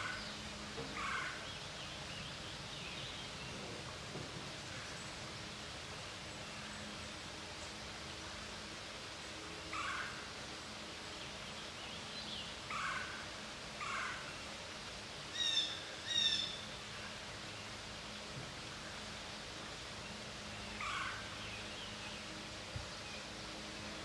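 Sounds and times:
birds calling: 0.0s - 7.8s, 11.2s - 14.4s, 15.3s - 18.2s, 20.0s - 24.0s
steady outdoor hiss: 0.0s - 24.0s.

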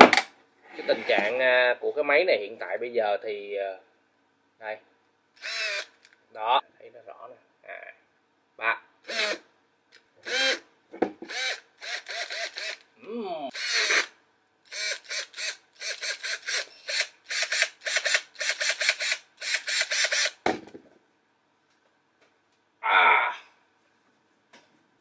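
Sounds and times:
cordless drill motor whirring: 5.4s - 6.0s, 9.1s - 9.4s, 10.2s - 10.6s, 11.3s - 12.8s, 13.5s - 14.1s, 14.7s - 20.4s.

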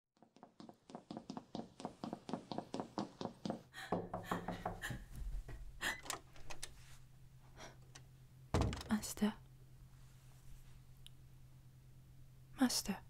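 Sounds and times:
low steady hum: 4.4s - 13.0s
heavy thud: 8.6s - 8.9s.

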